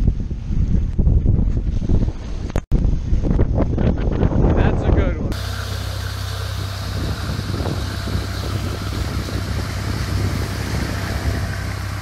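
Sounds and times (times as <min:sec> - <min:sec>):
wind: 0:00.0 - 0:12.0
churning wake: 0:05.3 - 0:12.0
motorboat engine droning: 0:05.3 - 0:12.0.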